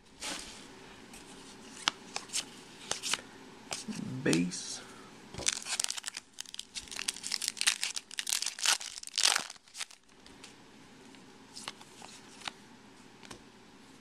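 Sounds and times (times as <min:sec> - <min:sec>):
foil wrapper crinkling and tearing: 0:05.4 - 0:10.1.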